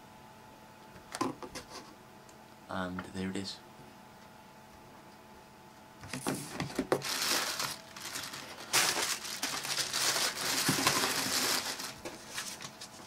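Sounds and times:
cardboard box rustling: 6.1 - 13.0
plastic air cushions crinkling: 6.8 - 13.0.

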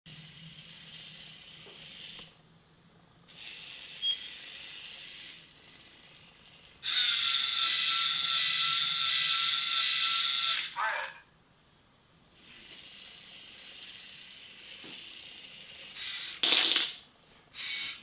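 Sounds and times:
robot motors whirring: 3.3 - 10.8.

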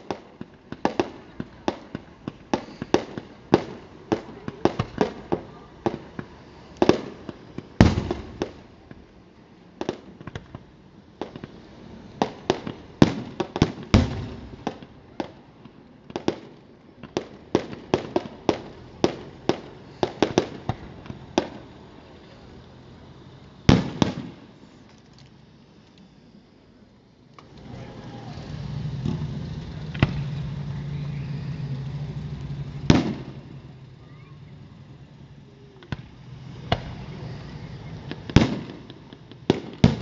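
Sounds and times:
fireworks bangs and crackling: 0.0 - 40.0
loud firework boom: 27.8 - 33.8.

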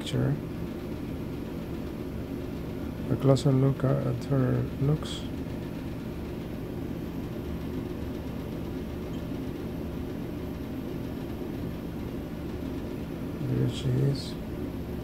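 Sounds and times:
low rumble and hum: 0.0 - 15.0.

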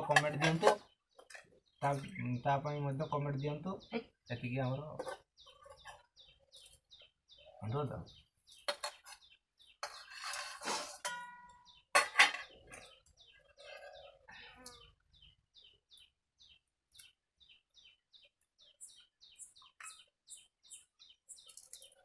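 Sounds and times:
steel bowls and utensils clattering: 0.0 - 1.5, 9.8 - 12.9
small bird chirping: 0.0 - 22.0.

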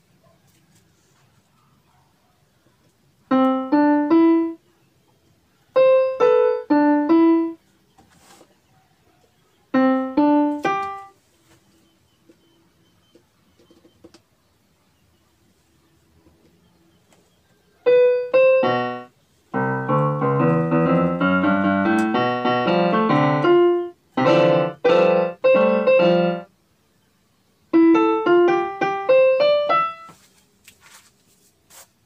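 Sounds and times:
electronic keyboard notes and chords: 3.3 - 4.6, 5.7 - 7.6, 9.7 - 11.2, 17.8 - 26.6, 27.7 - 30.2.

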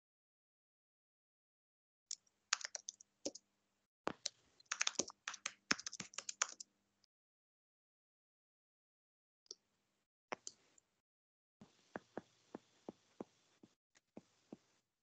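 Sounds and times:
typing on keyboard: 2.6 - 3.4, 4.1 - 6.6.

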